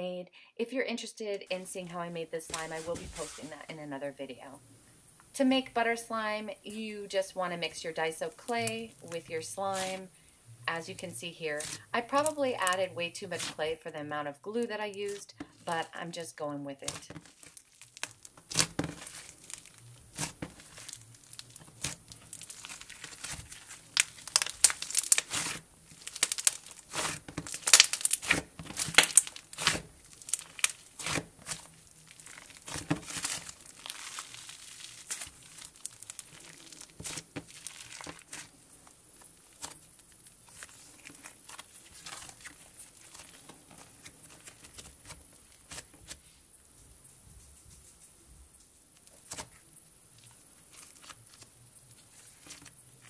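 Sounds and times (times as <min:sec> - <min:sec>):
slime being kneaded and stretched: 0:07.8 - 0:10.1, 0:11.0 - 0:13.7, 0:16.8 - 0:46.2, 0:50.2 - 0:52.8.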